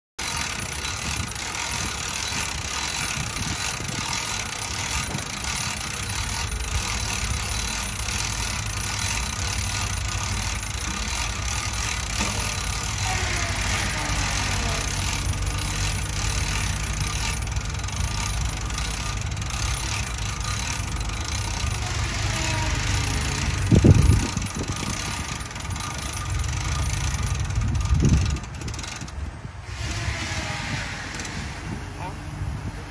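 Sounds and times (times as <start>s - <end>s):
small engine idling: 0.2s - 30.5s
wind buffeting microphone: 0.5s - 6.0s, 23.3s - 26.0s, 27.1s - 32.9s.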